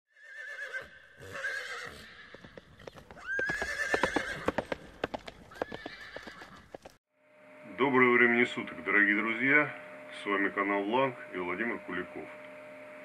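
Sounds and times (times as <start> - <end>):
horse whinnying: 0.1 - 6.9
galloping hoofbeats: 1.8 - 7.0.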